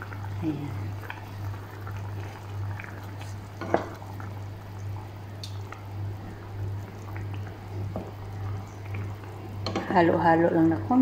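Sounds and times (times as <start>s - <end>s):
sauce simmering in a pan: 0.0s - 11.0s
steady low hum: 0.0s - 11.0s
wooden spoon stirring: 0.4s - 4.2s.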